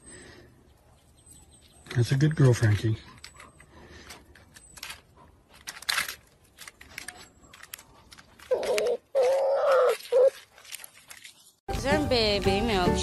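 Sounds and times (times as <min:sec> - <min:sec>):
claws scratching tree bark: 0:06.5 - 0:11.6.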